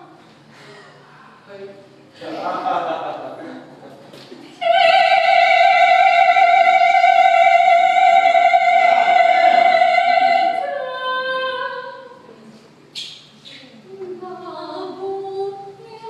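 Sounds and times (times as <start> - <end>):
woman singing opera: 4.6 - 12.2, 13.9 - 16.0.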